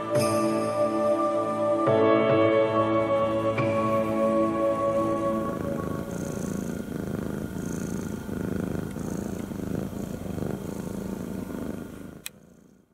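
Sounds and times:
cat purring: 3.2 - 12.9.

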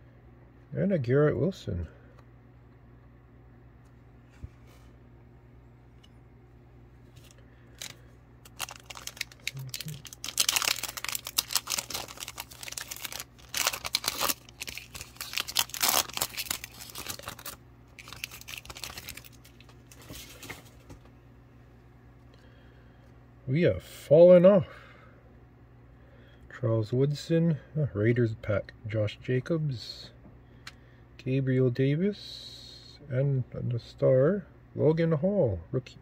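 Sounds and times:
foil wrapper crinkling: 7.1 - 20.8.

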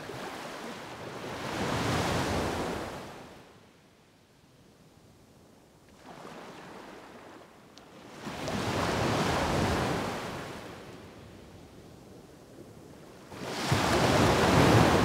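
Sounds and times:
sea waves washing ashore: 13.2 - 15.0.

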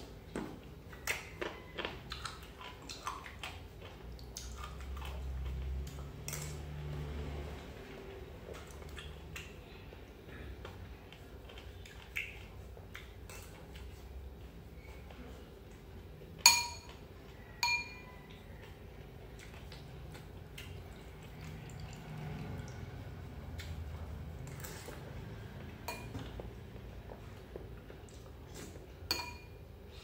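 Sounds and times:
metal spoon clinking ceramic bowl: 16.5 - 17.0, 17.6 - 18.0, 25.9 - 26.2, 29.1 - 29.6
soft clicks of spoon and bowls: 16.5 - 18.4, 25.8 - 26.4, 29.1 - 29.6.

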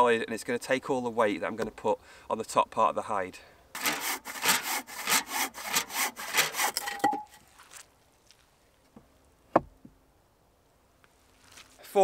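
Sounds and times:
hand saw cutting wood: 3.8 - 7.2.

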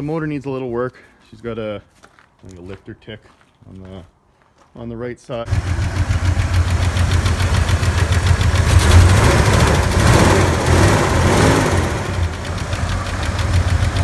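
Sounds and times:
engine idling: 5.5 - 14.0.

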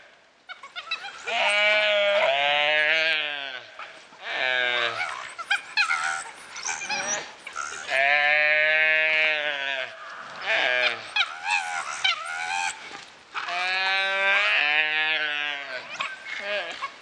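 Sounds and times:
high squeaky cries: 0.5 - 3.2, 3.9 - 9.8, 10.4 - 17.0
calf bleating in distress: 1.2 - 3.6, 4.2 - 5.3, 5.9 - 12.0, 13.5 - 16.8.

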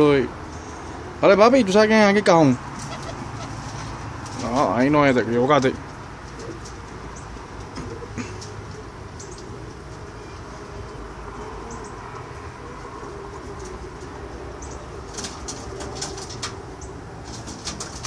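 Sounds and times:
pigeons cooing: 2.6 - 5.1, 5.8 - 18.0
pigeon wings flapping: 15.0 - 16.6, 17.2 - 18.0.

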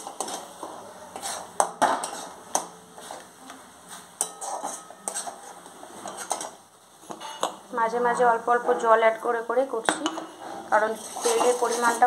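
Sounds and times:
spatula scraping paste in pan: 0.0 - 3.3, 4.2 - 6.5, 10.3 - 12.0.

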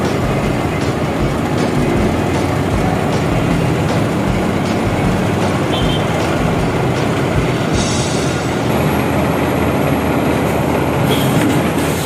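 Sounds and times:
low pump thumps: 0.0 - 8.8
concrete pump truck engine drone: 0.0 - 12.0.

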